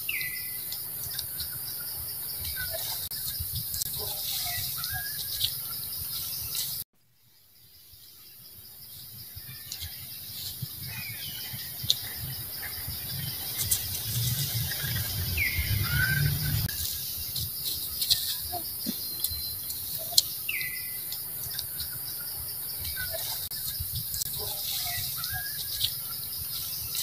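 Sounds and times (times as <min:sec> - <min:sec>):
birds chirping: 0:00.0 - 0:06.8, 0:07.4 - 0:27.0
pulsing insect drone: 0:00.0 - 0:27.0
low rumble: 0:10.7 - 0:16.8.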